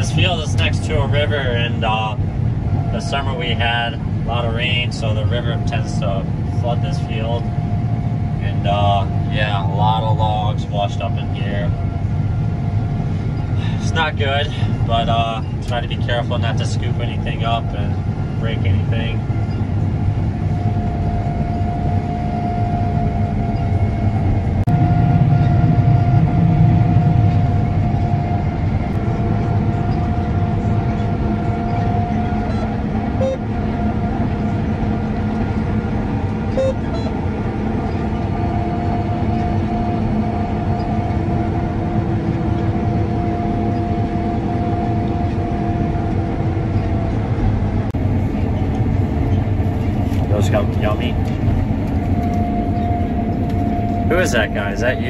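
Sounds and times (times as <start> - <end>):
combine harvester engine drone: 0.0 - 55.0
mid-pitched machine whine: 0.0 - 55.0.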